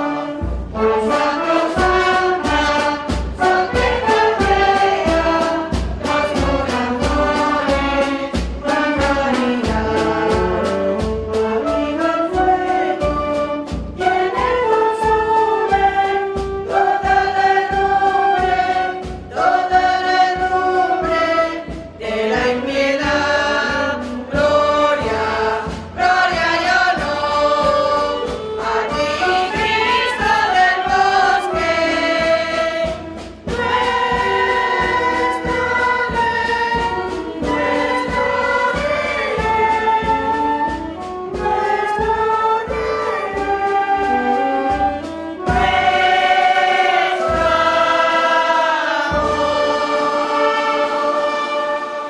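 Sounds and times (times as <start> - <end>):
choir singing a hymn: 0.0 - 52.0
instrumental accompaniment: 0.0 - 52.0.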